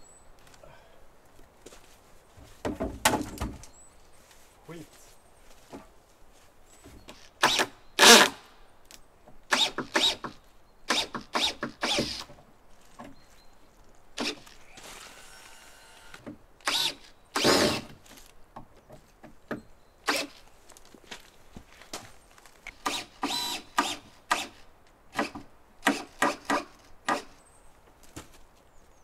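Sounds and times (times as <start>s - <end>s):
cordless drill driving screws: 7.4s - 8.4s, 9.5s - 12.3s, 14.2s - 18.0s, 20.1s - 20.4s, 22.7s - 24.6s.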